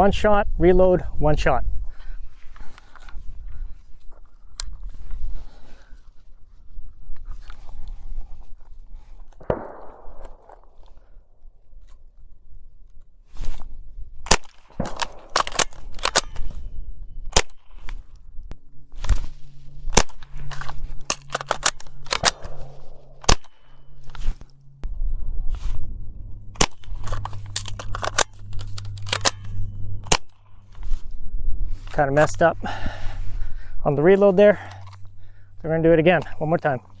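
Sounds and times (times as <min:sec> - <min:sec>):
rifle gunshots: 0:09.4 - 0:11.2, 0:14.3 - 0:16.6, 0:19.6 - 0:24.0
metallic magazine clacks: 0:14.3 - 0:16.7, 0:19.9 - 0:24.7, 0:26.6 - 0:30.4
low steady hum: 0:14.3 - 0:37.0.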